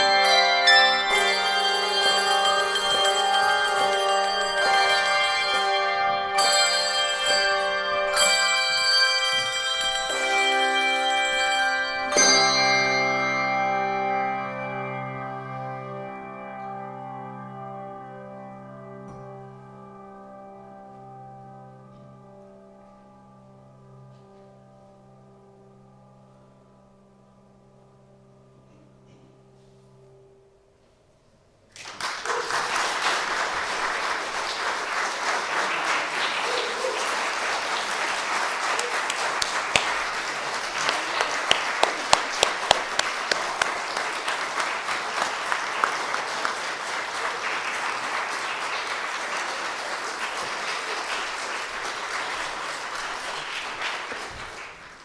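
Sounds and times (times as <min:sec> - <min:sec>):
audience applauding: 0:31.7 - 0:55.0
loud single claps: 0:38.6 - 0:46.0.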